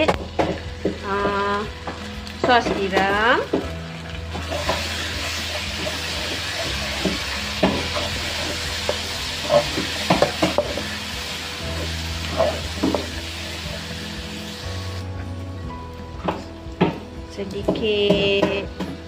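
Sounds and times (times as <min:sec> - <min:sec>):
onions sizzling in oil: 0:00.0 - 0:15.1
spatula scraping a wok: 0:04.3 - 0:13.9.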